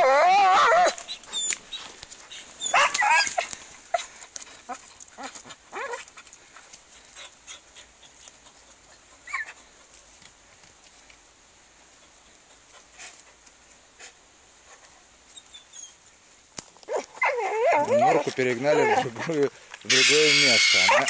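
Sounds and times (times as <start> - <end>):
dogs whining and yelping: 0.0 - 6.1, 7.0 - 9.7, 15.3 - 16.0, 16.9 - 19.2, 19.9 - 21.0
rustling: 0.0 - 21.0
dogs panting: 1.0 - 10.2, 11.8 - 15.1.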